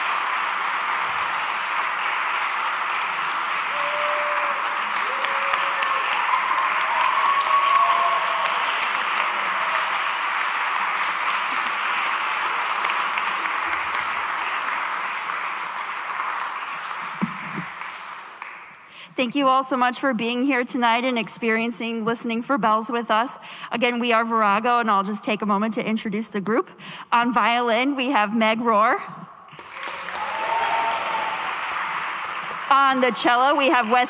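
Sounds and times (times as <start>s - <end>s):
audience applauding: 0.0s - 19.0s, 29.5s - 34.0s
voices whooping: 3.7s - 8.7s, 29.8s - 31.5s.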